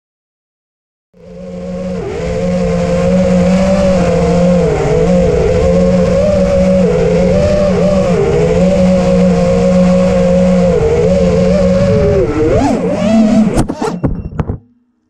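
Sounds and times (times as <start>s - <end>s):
quadcopter motors whining: 1.2s - 14.2s.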